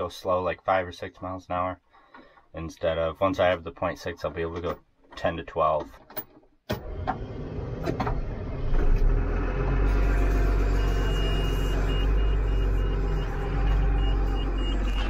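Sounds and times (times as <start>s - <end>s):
diesel engine starting and idling: 6.7s - 15.0s
warning tone beeping: 9.9s - 15.0s.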